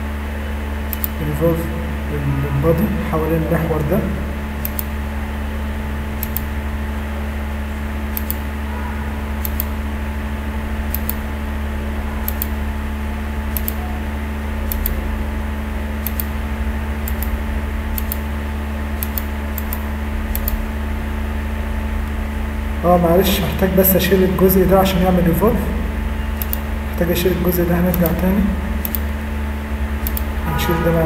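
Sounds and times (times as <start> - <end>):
computer fan whirring: 0.0 - 31.0
mouse clicks: 8.1 - 8.4, 13.5 - 13.8, 19.0 - 19.8, 26.4 - 26.6, 28.8 - 29.1.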